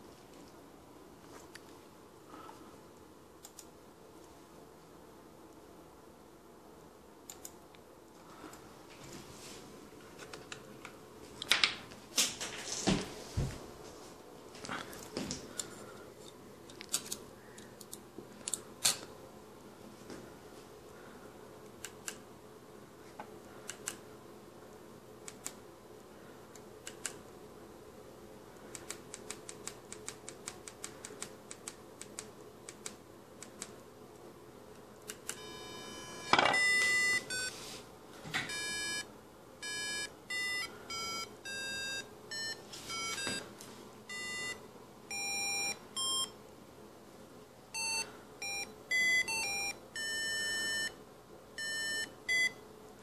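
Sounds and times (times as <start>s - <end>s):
small clicks: 7.3s - 7.6s, 26.8s - 27.2s, 28.7s - 33.8s
square-wave beep melody: 35.5s - 37.5s.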